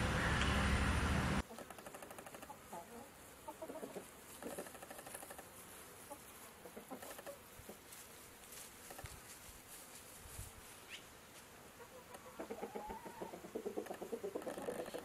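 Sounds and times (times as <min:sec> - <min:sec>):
chickens clucking: 0:01.4 - 0:08.0, 0:11.7 - 0:15.0.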